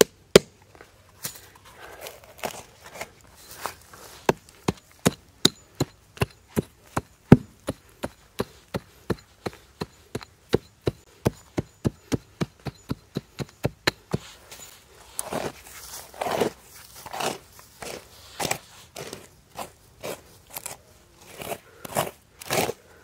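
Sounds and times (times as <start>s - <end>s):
hatchet chopping into soil: 0.0s - 0.6s, 4.2s - 14.3s.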